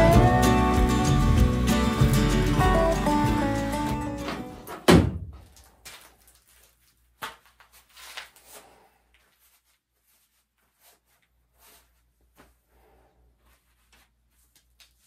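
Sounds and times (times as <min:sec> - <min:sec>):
leather gloves rustling: 0:05.6 - 0:12.6.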